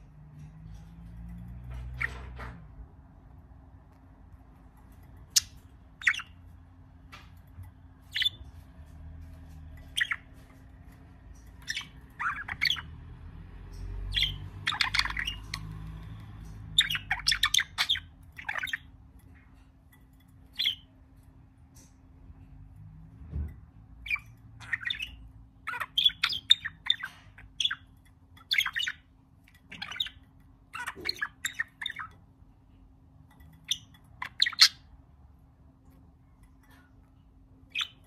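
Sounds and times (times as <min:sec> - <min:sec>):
budgerigar chirping and squawking: 0:05.3 - 0:06.4, 0:08.0 - 0:08.5, 0:09.8 - 0:10.6, 0:11.3 - 0:19.0, 0:20.5 - 0:20.9, 0:24.0 - 0:32.2, 0:33.6 - 0:34.9, 0:37.7 - 0:38.0.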